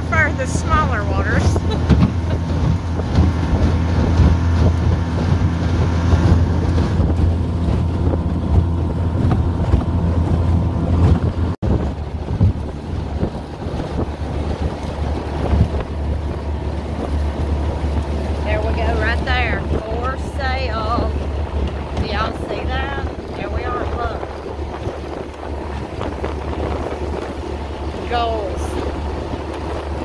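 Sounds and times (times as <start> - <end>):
outboard motor running: 0.0 - 30.0
water rushing past hull: 0.0 - 30.0
wind buffeting microphone: 0.0 - 30.0.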